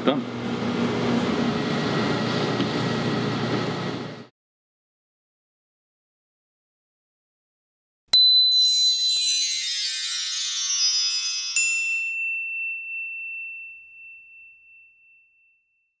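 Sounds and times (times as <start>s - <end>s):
sparkling bell-like chime: 8.1s - 16.0s
sharp ringing ding: 11.6s - 16.0s.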